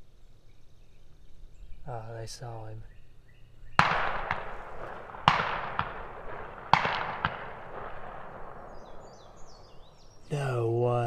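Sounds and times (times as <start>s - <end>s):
shotgun shots echoing: 3.7s - 10.2s.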